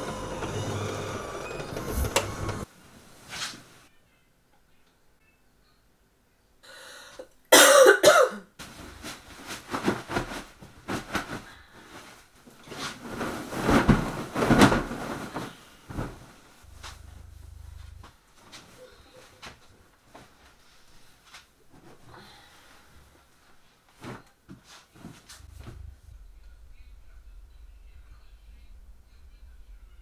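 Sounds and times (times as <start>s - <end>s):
person coughing: 7.5s - 8.5s
bedding rustling: 8.6s - 26.6s.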